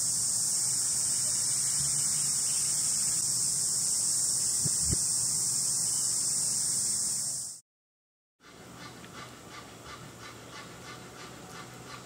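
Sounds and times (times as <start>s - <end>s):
high-pitched hiss: 0.0s - 7.6s.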